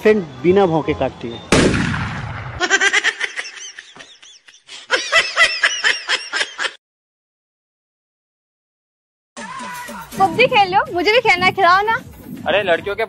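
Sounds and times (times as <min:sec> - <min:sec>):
person laughing in pulses: 0:02.6 - 0:06.8.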